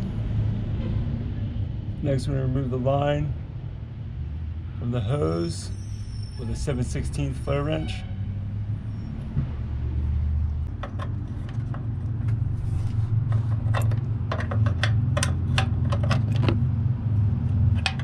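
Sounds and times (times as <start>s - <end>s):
steady low hum: 8.7s - 18.0s.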